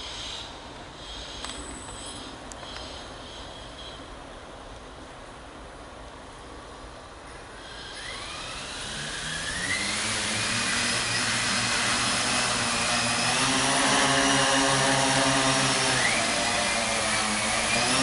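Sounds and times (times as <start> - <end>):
drone rotors whining and buzzing: 7.5 - 18.0.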